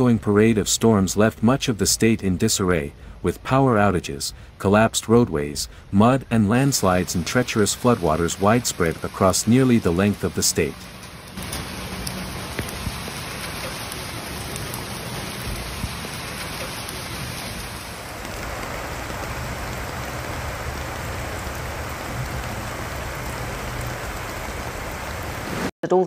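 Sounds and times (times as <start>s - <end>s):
heavy rain on a flooded street: 6.6s - 25.7s.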